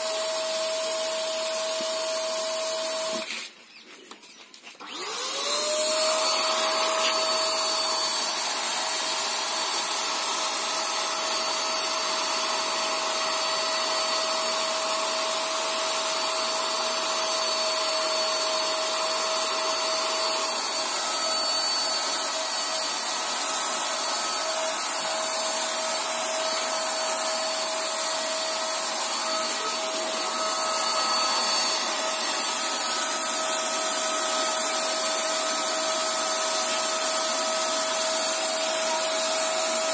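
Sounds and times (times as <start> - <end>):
paint sprayer motor whine: 0.0 - 3.5, 4.8 - 39.9.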